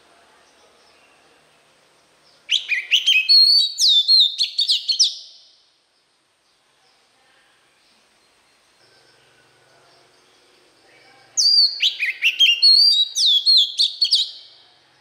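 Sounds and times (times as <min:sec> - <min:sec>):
bird singing whistled notes: 0:02.2 - 0:05.6, 0:07.8 - 0:14.6.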